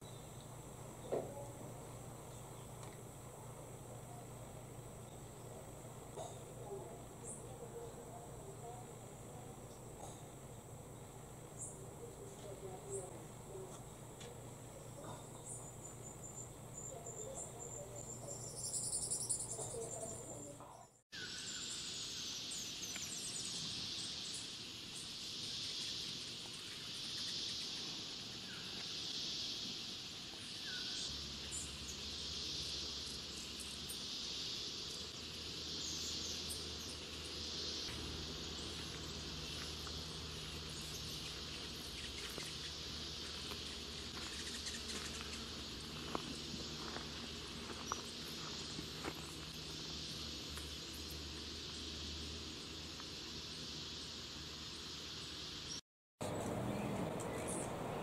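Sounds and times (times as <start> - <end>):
insect buzzing chorus: 0.0 - 55.8
thin high insect tone: 0.0 - 55.8.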